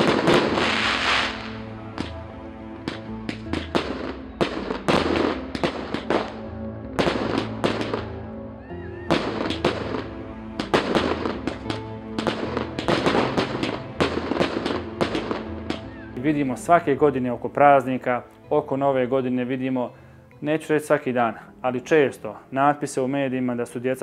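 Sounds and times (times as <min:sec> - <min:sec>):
fireworks cracking and banging: 0:00.0 - 0:02.2, 0:02.8 - 0:06.4, 0:07.0 - 0:08.0, 0:09.1 - 0:15.9
background music with bass: 0:00.0 - 0:23.5.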